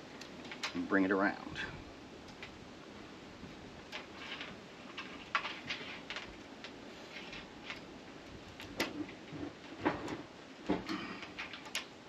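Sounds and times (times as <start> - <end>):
light clicks of metal wire: 11.2 - 12.0.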